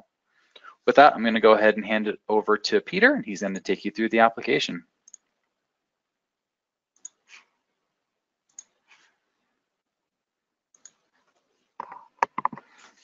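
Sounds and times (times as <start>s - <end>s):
computer mouse clicks: 5.1s - 5.3s, 7.0s - 7.4s, 8.5s - 8.8s, 10.7s - 11.0s, 11.8s - 12.9s.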